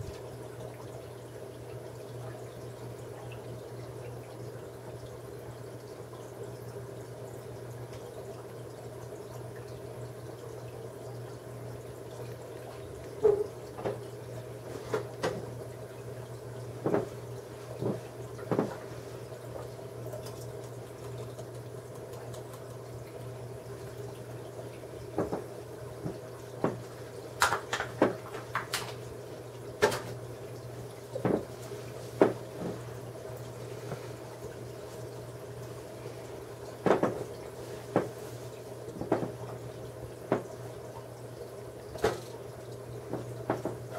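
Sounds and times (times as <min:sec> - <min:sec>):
aquarium filter humming: 0:00.0 - 0:43.9
water trickling: 0:00.0 - 0:43.9.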